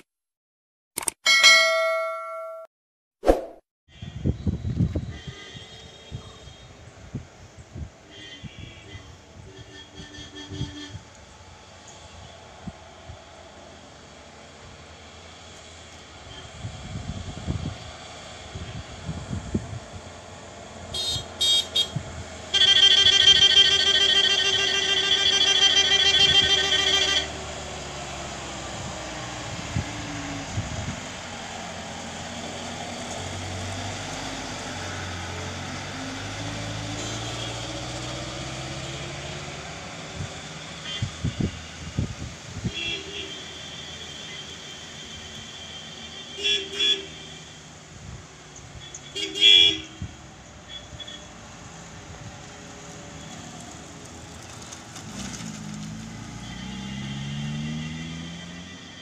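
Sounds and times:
tyre and road noise: 6.2 - 59.0
bus engine running: 10.0 - 42.6
car engine: 51.5 - 59.0.

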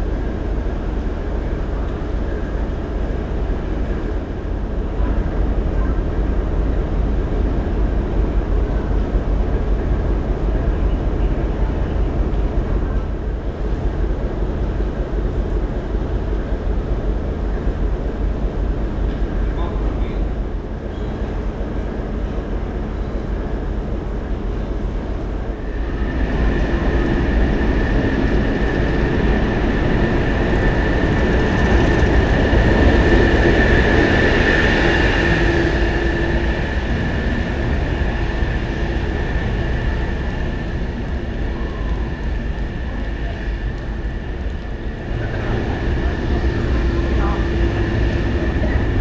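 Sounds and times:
diesel engine rumble: 20.7 - 49.0.

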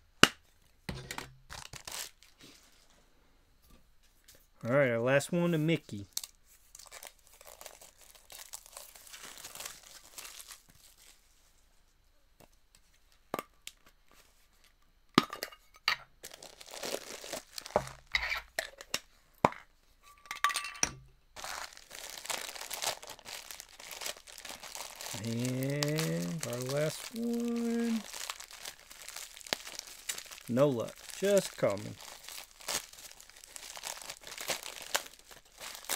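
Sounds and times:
plastic wrapping crinkling: 1.2 - 2.9, 6.0 - 11.4, 16.2 - 18.1, 21.4 - 35.9.

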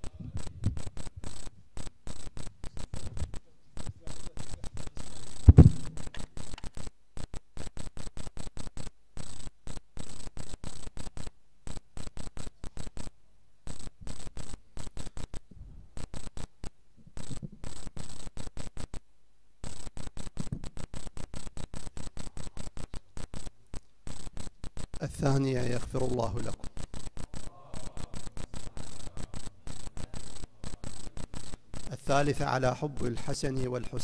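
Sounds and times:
crackling clicks: 0.0 - 34.0
low thump: 5.5 - 5.9.

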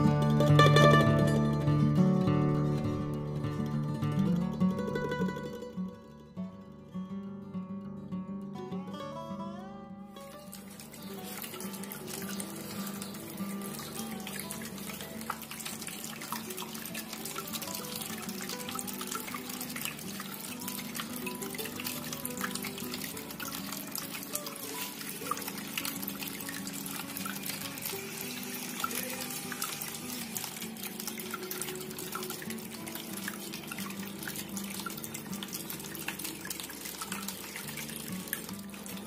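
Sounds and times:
soft background music: 0.0 - 39.0
fountain water trickling: 10.2 - 39.0.

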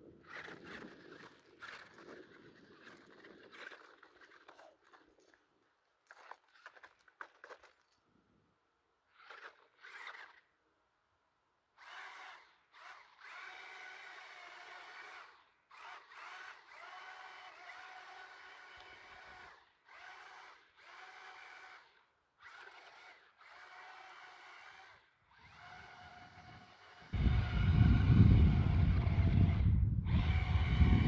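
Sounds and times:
electric motor whining: 9.2 - 10.5, 11.8 - 31.0.

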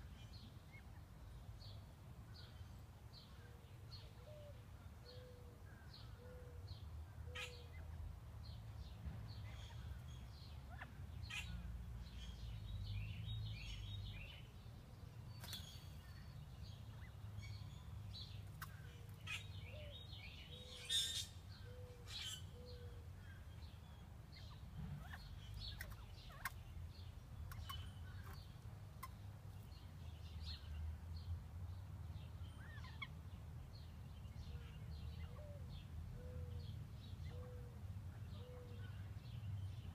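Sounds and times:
quail calling softly: 7.3 - 7.8.

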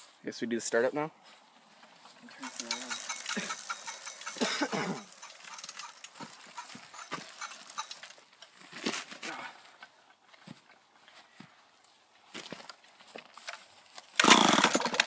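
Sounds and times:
light knocks and rattles: 2.4 - 8.2.

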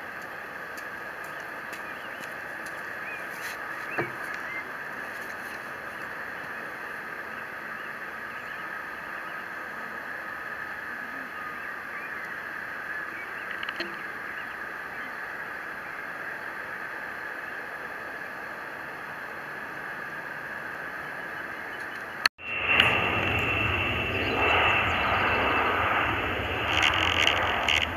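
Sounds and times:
jet engines idling: 0.0 - 15.1, 18.3 - 27.9
faint ticks: 26.6 - 27.9.

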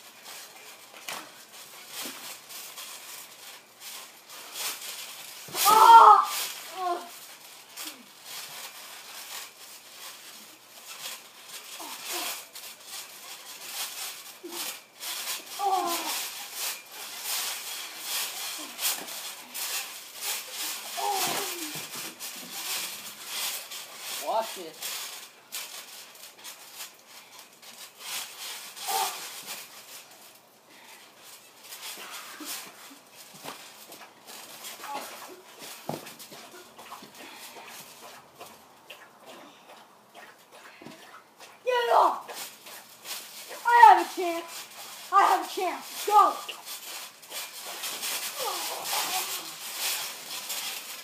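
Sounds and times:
trampoline creaking: 0.0 - 51.0
bodies grappling on trampoline mat: 0.2 - 26.7, 30.8 - 51.0
scuffing on trampoline mat: 31.4 - 51.0.

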